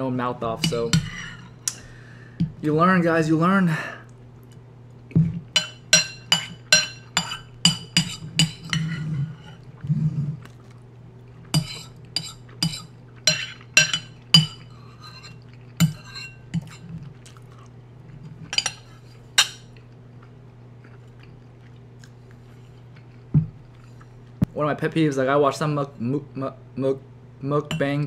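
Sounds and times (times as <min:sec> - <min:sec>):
utensil clinking against a dish: 0:05.6 - 0:09.0, 0:11.6 - 0:16.8.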